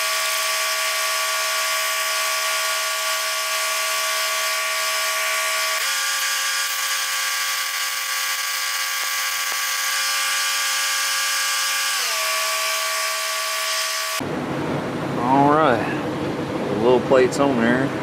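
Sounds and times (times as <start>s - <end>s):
power tool motor whining: 0.0s - 14.2s.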